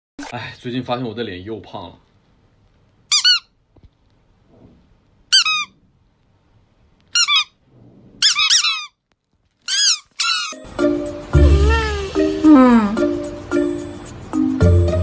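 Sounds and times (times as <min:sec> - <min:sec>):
squeaky toy squeaking: 0:03.1 - 0:03.5, 0:05.3 - 0:05.8, 0:07.1 - 0:07.6, 0:08.2 - 0:09.0, 0:09.6 - 0:10.7, 0:11.4 - 0:12.3.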